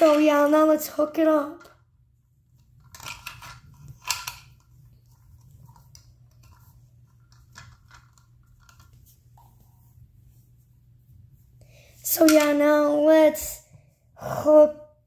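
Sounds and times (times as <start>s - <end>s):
faint clicks and rustles: 2.5s - 11.6s
plastic parts clattering: 2.8s - 4.6s.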